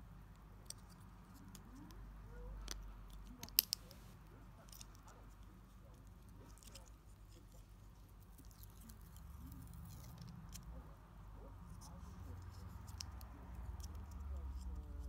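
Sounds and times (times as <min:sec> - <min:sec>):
plastic toy parts clicking: 0:02.6 - 0:04.0
sharp plastic clicks: 0:02.6 - 0:04.0.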